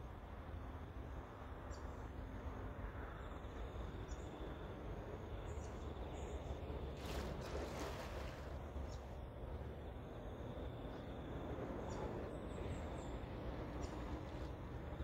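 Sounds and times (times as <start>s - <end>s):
faint insect chirps: 2.8s - 15.0s
water splash: 7.0s - 8.7s.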